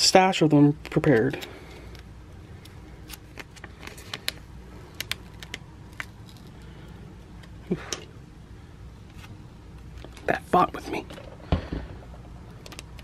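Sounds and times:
plastic sheet clicks and crackles: 11.7s - 13.0s.

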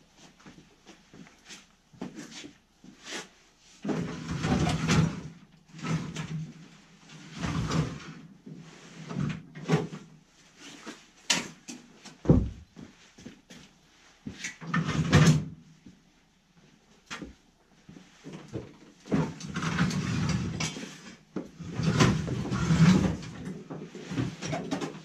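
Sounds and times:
snowmobile scraping on wooden floor: 21.6s - 23.3s.

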